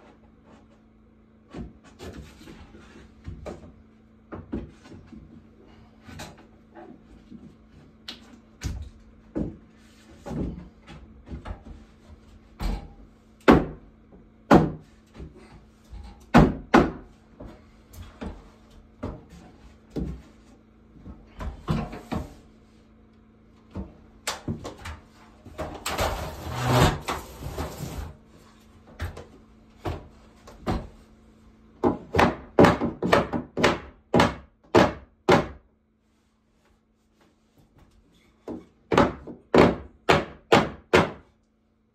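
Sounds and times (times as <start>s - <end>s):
hammer knocking on wooden boards: 13.4s - 13.8s, 14.5s - 14.9s, 16.3s - 17.0s, 31.8s - 35.6s, 38.4s - 41.2s.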